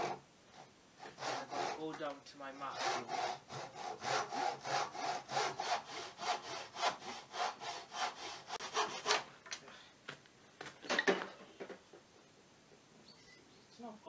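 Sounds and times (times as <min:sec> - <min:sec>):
hand saw cutting wood: 0:00.0 - 0:09.3.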